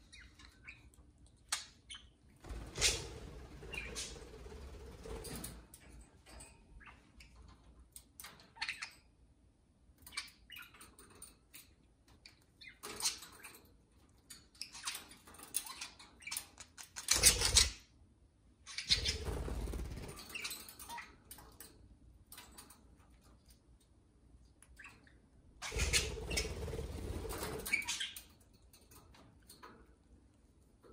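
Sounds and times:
budgerigars chirping: 25.6 - 26.6.

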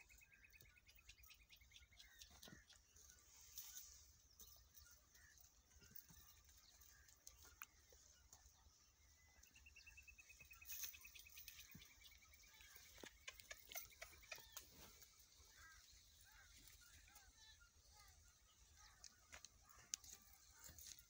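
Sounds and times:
faint outdoor ambience: 0.0 - 21.0.

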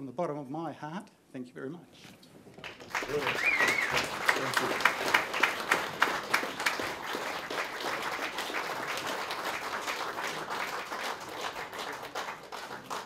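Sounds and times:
audience applauding: 2.6 - 13.0.

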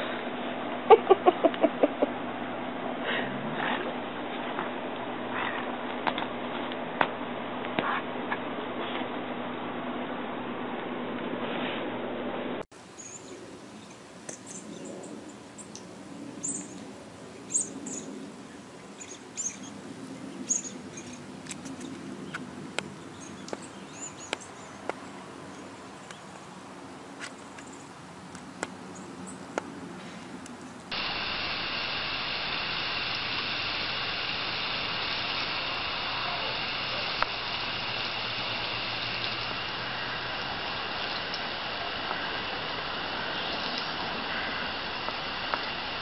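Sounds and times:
garden hose spraying water: 12.7 - 46.0
birds chirping: 12.9 - 26.7.

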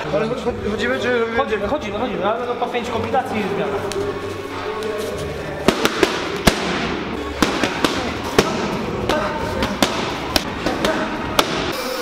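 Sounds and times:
boxing gloves slapping pads: 5.7 - 11.8.

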